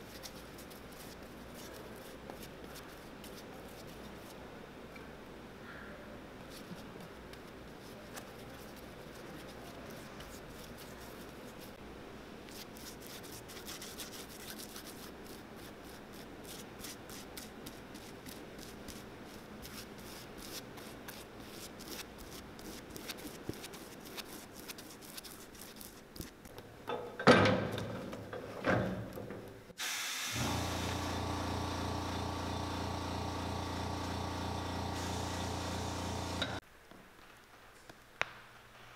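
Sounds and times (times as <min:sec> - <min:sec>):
bristle brush scraping: 0:07.8 - 0:11.8, 0:12.5 - 0:26.4.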